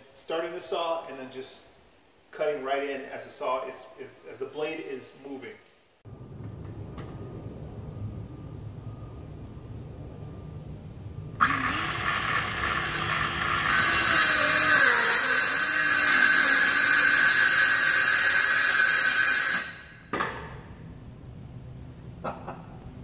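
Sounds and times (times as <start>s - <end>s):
circular saw cutting: 11.4s - 20.1s.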